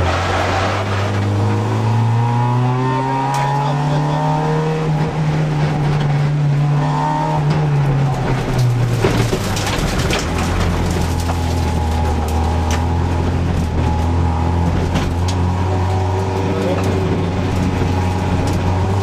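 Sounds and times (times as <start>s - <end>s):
rally car engine from cabin: 0.0s - 19.0s
car knocks and rattles: 7.2s - 19.0s.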